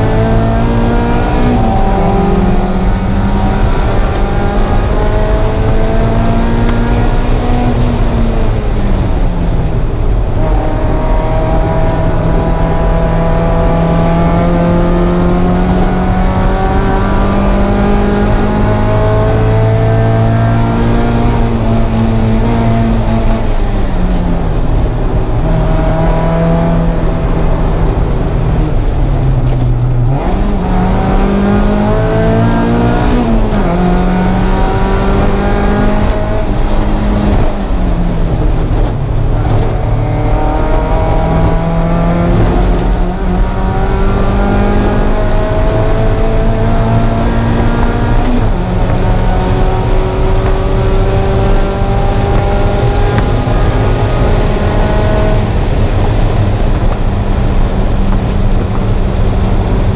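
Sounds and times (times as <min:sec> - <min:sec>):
car engine revving: 0:00.0 - 0:59.9
road and wind rumble: 0:00.0 - 0:59.9.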